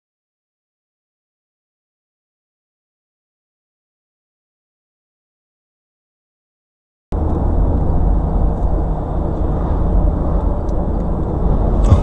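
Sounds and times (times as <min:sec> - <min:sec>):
car tyre and engine rumble: 0:07.1 - 0:12.0.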